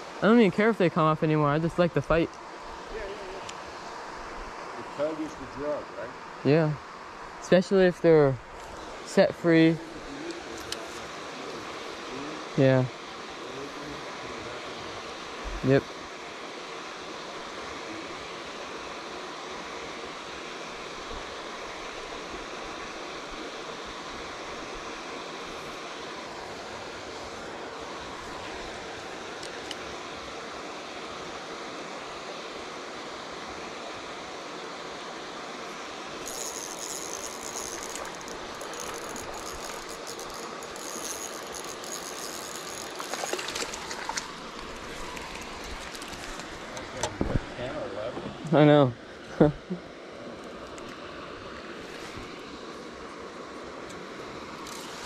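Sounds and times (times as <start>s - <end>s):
running water hiss: 0.0s - 55.0s
fishing reel ratcheting whir: 36.2s - 46.2s, 54.6s - 55.0s
sharp reel clicks: 36.2s - 46.2s.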